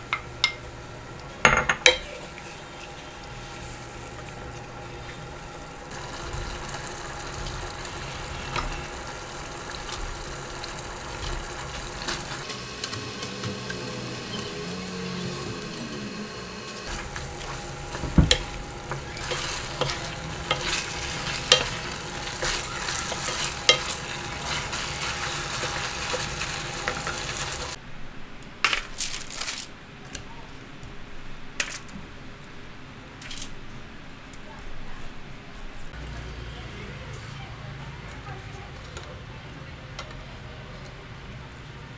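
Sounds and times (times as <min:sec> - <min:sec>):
meat sizzling in a pan: 0:01.8 - 0:27.8
wooden spatula scraping a pan: 0:16.8 - 0:27.8.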